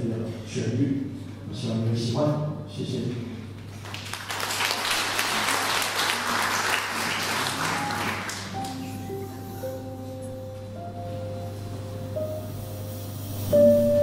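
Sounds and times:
audience applauding: 3.7s - 9.2s
band playing held notes: 6.4s - 14.0s.

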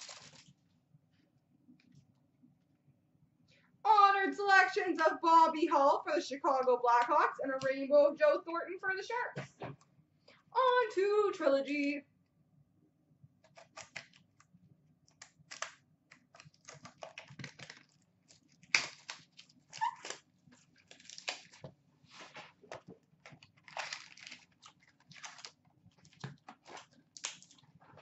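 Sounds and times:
wrapper tearing and crinkling: 0.0s - 0.6s, 15.2s - 22.5s, 23.2s - 27.8s.

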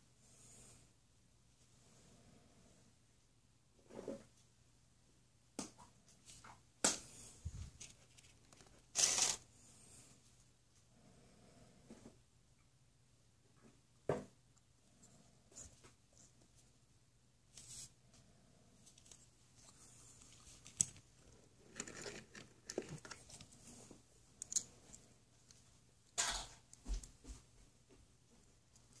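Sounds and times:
faint handling sound: 6.1s - 9.5s, 17.5s - 29.0s
plastic scrape: 7.6s - 9.4s, 19.6s - 23.8s.

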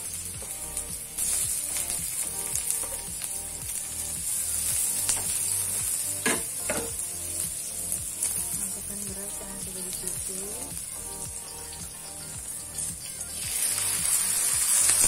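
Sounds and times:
food sizzling in hot oil: 0.0s - 15.0s
soft background music with beat: 0.0s - 15.0s
spatula knocking against wok: 6.2s - 6.9s.

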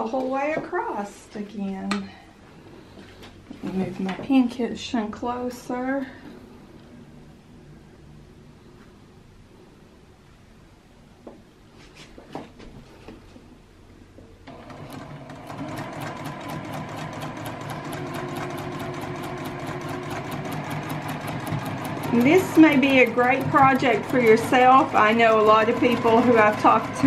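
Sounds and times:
sewing machine stitching: 14.5s - 27.0s.

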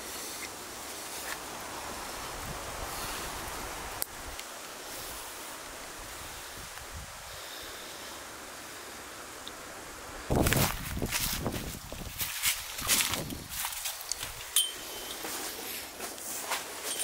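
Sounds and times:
wind noise: 1.7s - 7.5s, 10.0s - 15.3s.

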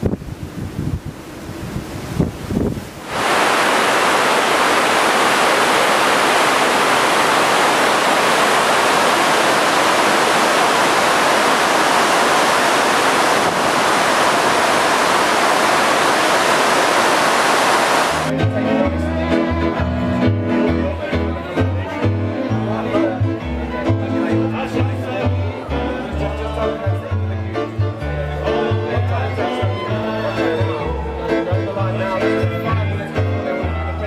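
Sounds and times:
wind buffeting: 0.0s - 18.3s
churning water rushing: 1.6s - 18.3s.

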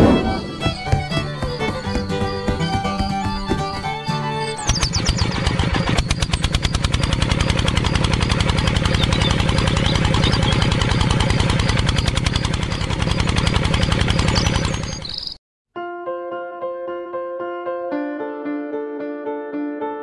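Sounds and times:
tractor engine chugging: 0.0s - 15.3s.

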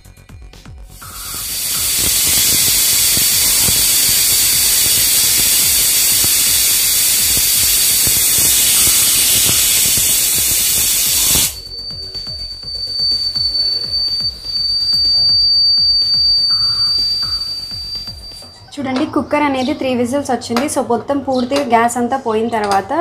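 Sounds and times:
pressure cooker whistling: 0.9s - 18.7s.

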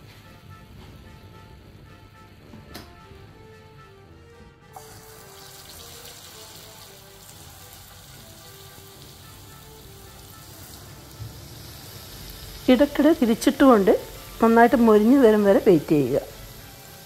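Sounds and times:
soft background music: 0.0s - 17.0s
batter deep-frying in oil: 4.7s - 17.0s.

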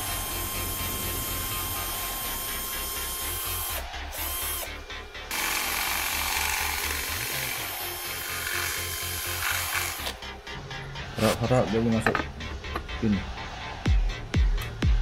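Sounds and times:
cordless drill boring: 0.0s - 10.2s.

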